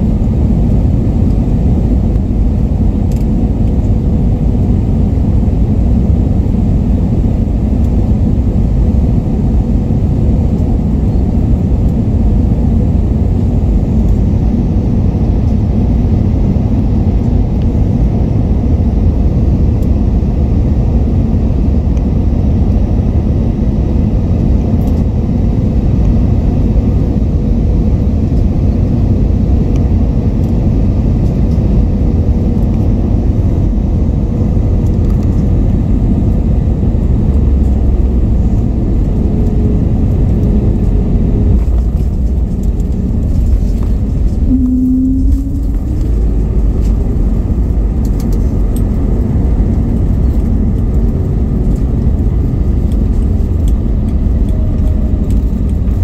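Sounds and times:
aircraft cabin engine rumble: 0:00.0 - 0:56.0
faint steady hum: 0:36.3 - 0:56.0.

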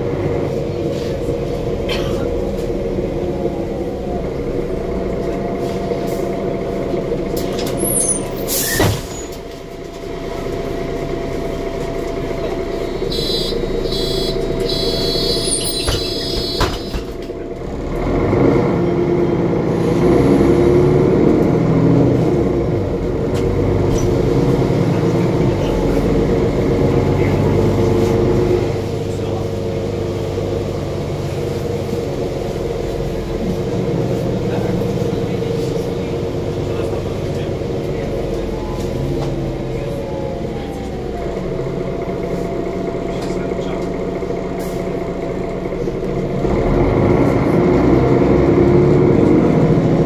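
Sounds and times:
bus diesel engine running: 0:00.0 - 0:50.0
electronic beeping: 0:13.1 - 0:17.0.

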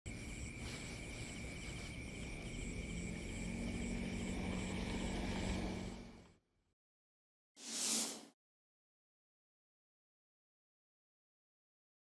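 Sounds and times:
insects trilling: 0:00.1 - 0:06.1
pulsing insect chirps: 0:00.1 - 0:06.1.

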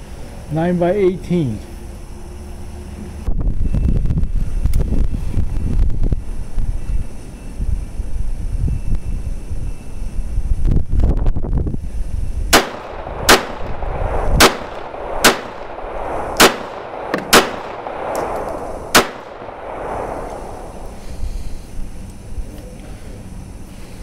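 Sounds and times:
pistol shots with echo: 0:12.5 - 0:20.8.

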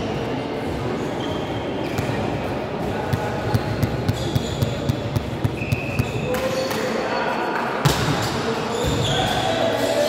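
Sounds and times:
sneaker squeaks: 0:01.0 - 0:02.3, 0:03.1 - 0:07.3, 0:08.2 - 0:10.0.

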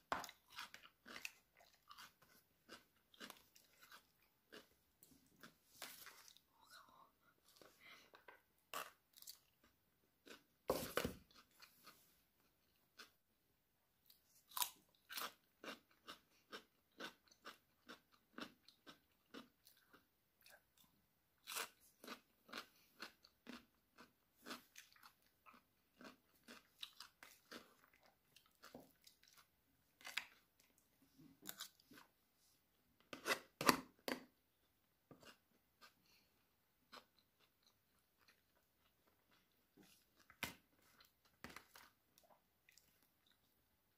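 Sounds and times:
close-up chewing: 0:00.1 - 0:06.7, 0:14.5 - 0:32.1.

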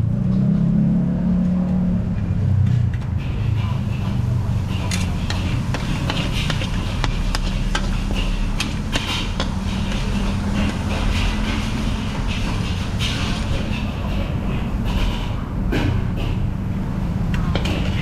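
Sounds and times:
gas burner rumble: 0:01.5 - 0:18.0
metal utensils clanking on wok: 0:03.2 - 0:16.4.

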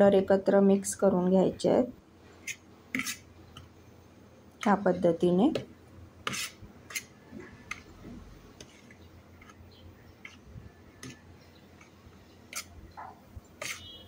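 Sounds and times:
metal spoon scraping steel plate: 0:02.4 - 0:03.3, 0:06.2 - 0:07.8, 0:12.5 - 0:12.8, 0:13.6 - 0:14.0.

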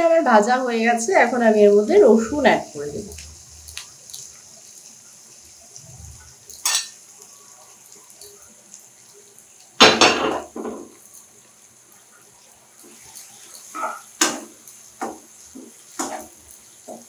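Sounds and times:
utensils clinking against cookware: 0:06.6 - 0:07.0.

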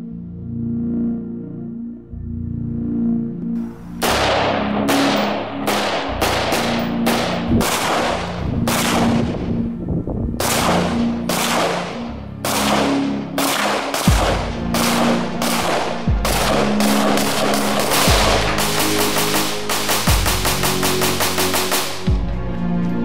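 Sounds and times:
background music: 0:00.0 - 0:23.0
rifle shots: 0:04.0 - 0:09.5, 0:10.4 - 0:22.0.

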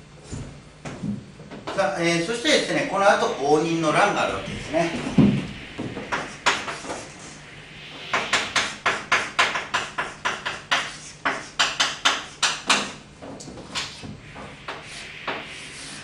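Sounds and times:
chalk tapping and scraping on blackboard: 0:06.1 - 0:07.3, 0:08.1 - 0:13.0, 0:13.6 - 0:16.0.

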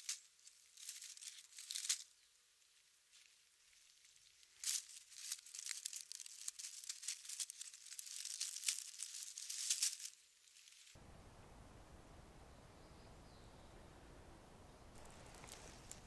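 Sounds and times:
dry leaves rustling and crackling: 0:00.0 - 0:11.0, 0:14.9 - 0:16.0.

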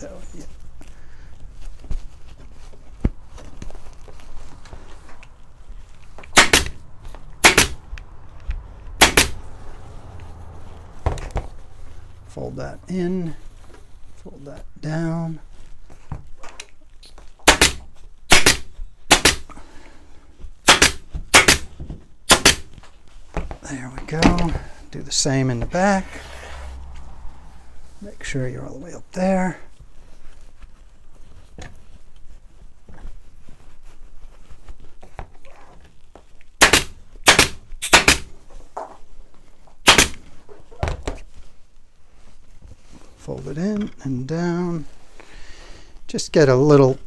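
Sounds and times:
faint fabric rustling: 0:00.0 - 0:47.0
pneumatic staple gun firing: 0:06.4 - 0:06.8, 0:07.4 - 0:07.8, 0:09.0 - 0:09.4, 0:17.5 - 0:19.5, 0:20.7 - 0:21.7, 0:22.3 - 0:22.7, 0:36.6 - 0:38.3, 0:39.8 - 0:40.2.

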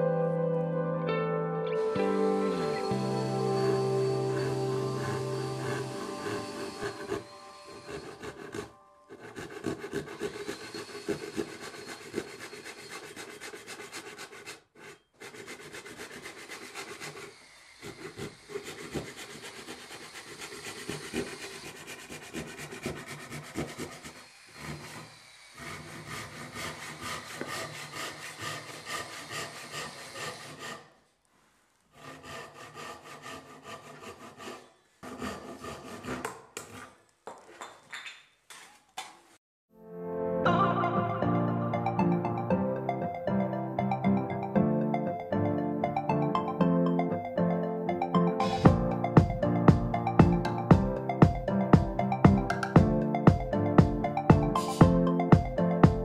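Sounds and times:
hand saw cutting wood: 0:02.2 - 0:31.1, 0:31.9 - 0:37.6.

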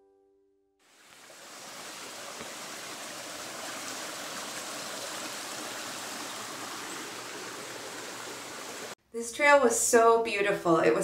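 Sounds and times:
brook running over stones: 0:00.8 - 0:09.0.

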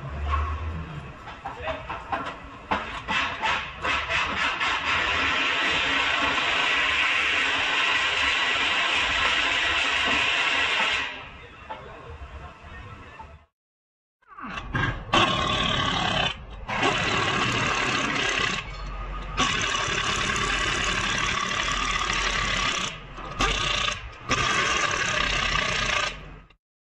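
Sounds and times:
pneumatic impact wrench bursts: 0:03.0 - 0:11.2, 0:16.7 - 0:18.8, 0:19.4 - 0:26.3.

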